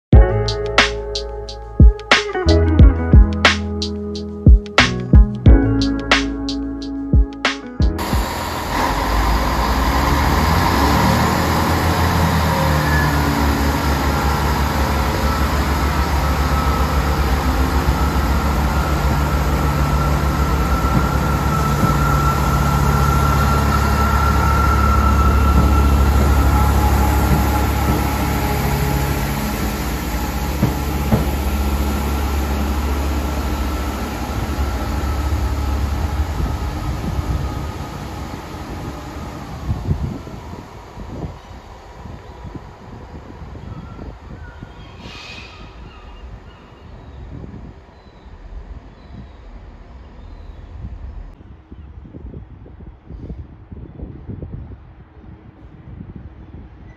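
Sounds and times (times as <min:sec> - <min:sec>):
train diesel engine hum: 0:07.9 - 0:51.4.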